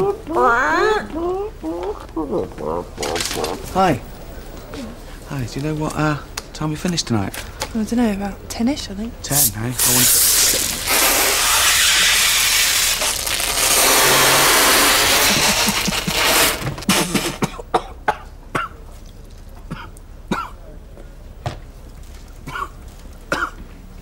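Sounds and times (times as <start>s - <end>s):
sparkling water spraying hiss: 9.3s - 16.6s
person coughing and spluttering: 15.2s - 18.9s, 19.7s - 20.7s, 22.4s - 23.6s.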